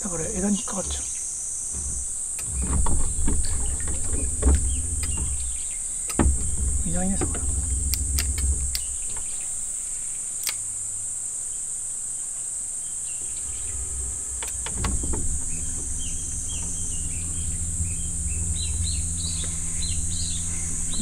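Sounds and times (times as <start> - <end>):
low steady hum: 0.0 - 11.1, 13.0 - 21.0
brief clicks: 10.4 - 10.6
high-pitched insect drone: 13.2 - 21.0.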